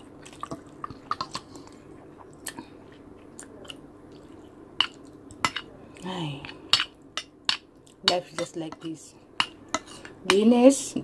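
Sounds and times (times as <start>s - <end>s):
chewing and swallowing: 0.0s - 7.1s.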